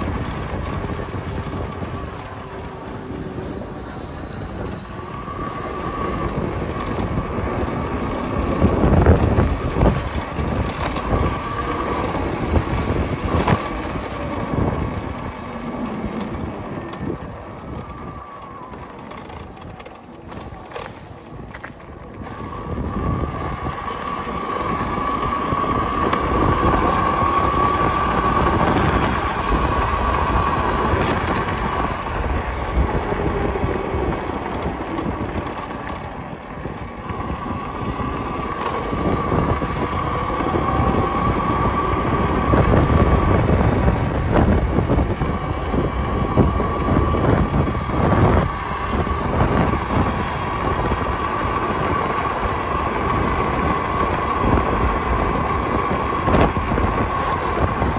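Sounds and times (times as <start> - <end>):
electric motor whine: 0.0 - 57.9
tyre and wind rumble: 0.0 - 57.9.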